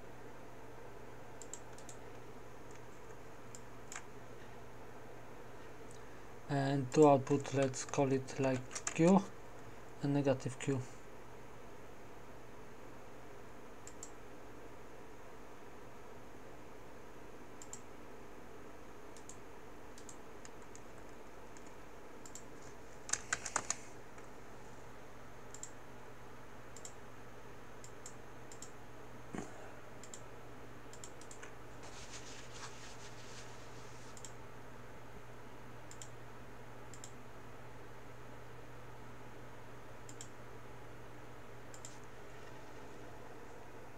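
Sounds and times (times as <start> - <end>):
faint low hum: 0.0 - 43.9
computer mouse and keyboard clicks: 1.4 - 4.1, 7.3 - 9.2, 20.0 - 24.3, 30.9 - 31.6, 41.7 - 42.1.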